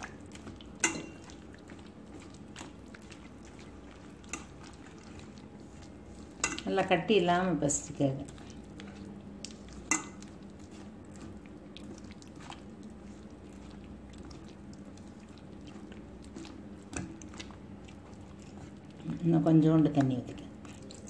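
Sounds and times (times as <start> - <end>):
hand squeezing wet batter: 0.0 - 21.0.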